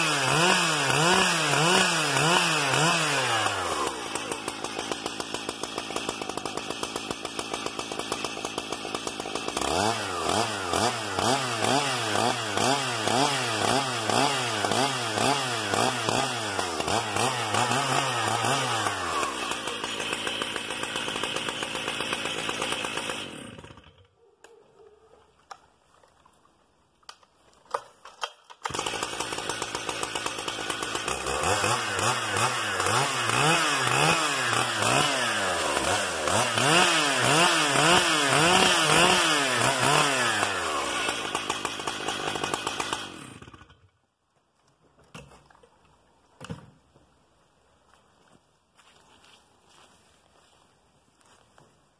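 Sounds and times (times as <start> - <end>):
chainsaw engine revving: 0.0 - 24.1, 28.6 - 43.9.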